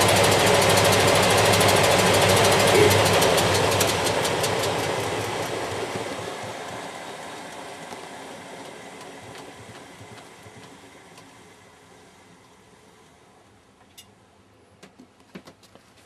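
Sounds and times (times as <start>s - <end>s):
washing machine drum whirring: 0.0s - 12.4s.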